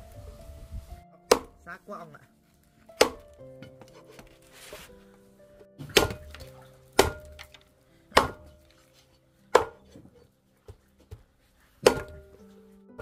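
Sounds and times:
faint background music: 0.0s - 13.0s
cleaver chopping bone on wood: 1.3s - 1.6s, 3.0s - 3.3s, 5.8s - 8.6s, 9.5s - 9.9s, 11.8s - 12.3s.

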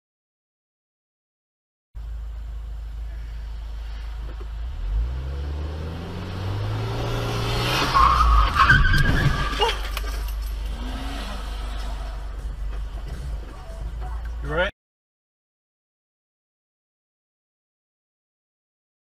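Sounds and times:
car engine accelerating: 2.0s - 14.7s
tires squealing under braking: 4.9s - 12.4s.

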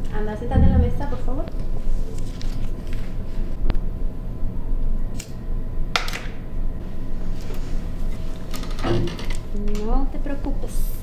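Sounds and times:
low room rumble: 0.0s - 8.5s.

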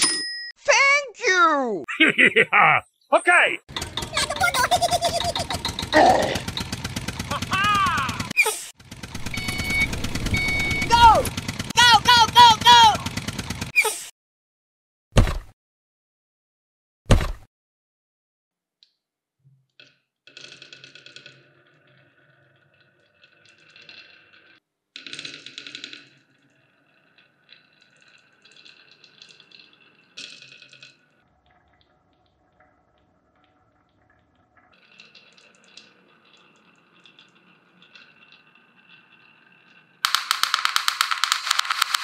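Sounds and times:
balls clattering down wooden track: 19.8s - 31.2s, 31.8s - 42.0s.

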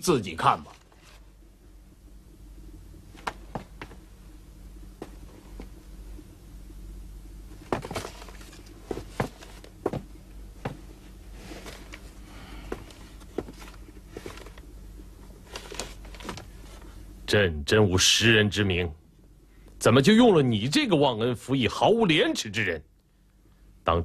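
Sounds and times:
steady low hum: 0.0s - 24.0s.

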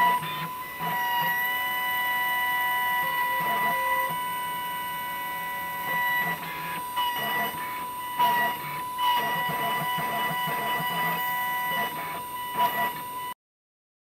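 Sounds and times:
milling machine motor whine: 0.0s - 13.4s.

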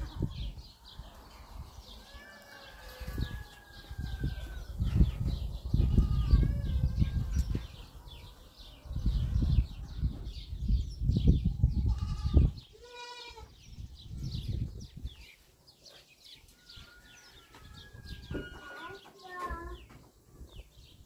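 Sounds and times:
wind noise on microphone: 0.0s - 15.4s, 16.7s - 21.0s
small birds chirping: 0.0s - 21.0s
goat bleating: 11.9s - 13.5s.

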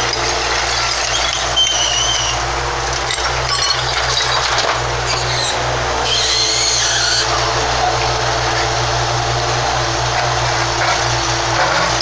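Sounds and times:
diesel engine running under load: 0.0s - 12.0s
short high squeals: 1.0s - 2.5s, 5.0s - 7.4s.

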